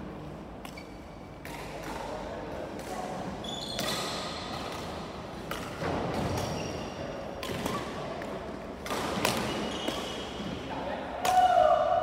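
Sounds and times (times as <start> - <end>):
rackets hitting shuttlecock: 0.6 - 10.6
short high squeaks: 3.4 - 4.2.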